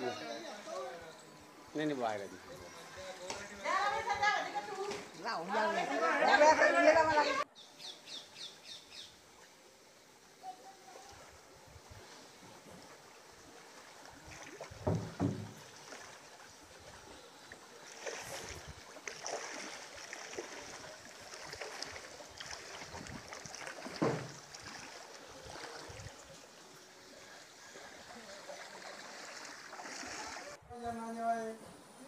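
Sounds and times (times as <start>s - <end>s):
water sloshing and splashing: 10.8s - 30.6s.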